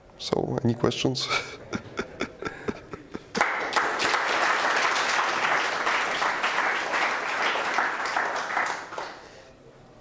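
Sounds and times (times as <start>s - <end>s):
audience applauding: 3.2s - 9.3s.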